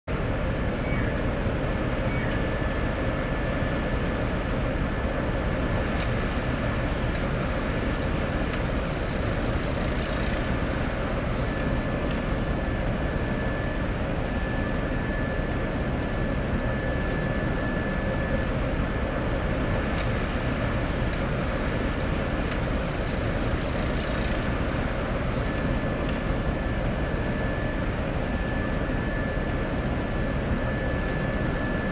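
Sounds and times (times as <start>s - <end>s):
thin high whine: 20.8s - 31.9s.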